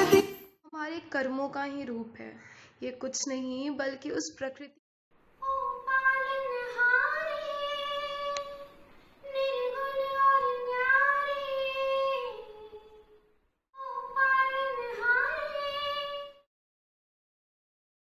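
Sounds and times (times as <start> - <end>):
breaths: 2.3 - 2.8.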